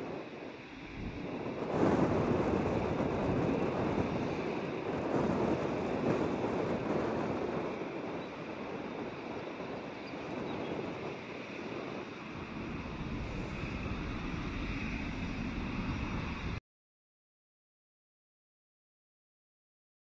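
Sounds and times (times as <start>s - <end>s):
jet engines at takeoff: 0.0s - 16.6s
wind buffeting microphone: 0.0s - 16.6s.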